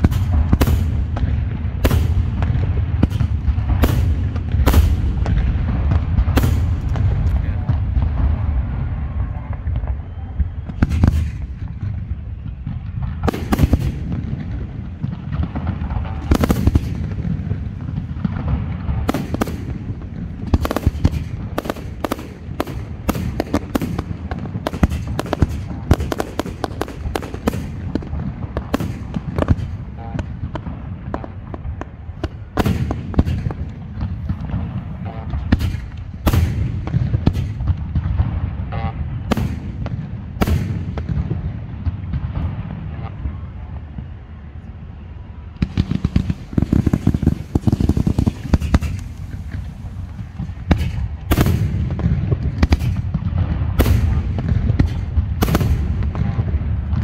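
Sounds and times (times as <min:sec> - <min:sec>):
low rumble: 0:00.0 - 0:57.0
firework shells bursting: 0:45.6 - 0:53.1.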